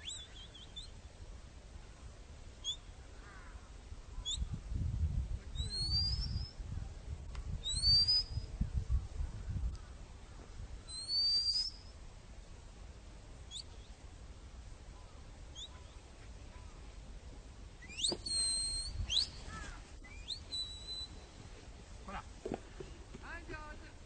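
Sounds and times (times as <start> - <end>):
high whistled calls: 0.0 - 0.9, 5.6 - 6.6, 7.6 - 8.5, 10.9 - 12.0, 13.5 - 13.9, 17.8 - 21.4.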